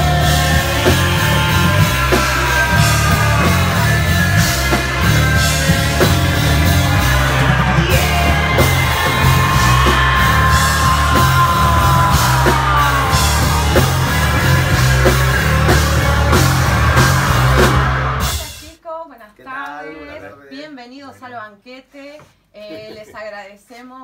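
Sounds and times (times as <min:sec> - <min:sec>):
person singing and shouting: 0:00.0 - 0:18.6
rock band playing: 0:00.0 - 0:18.8.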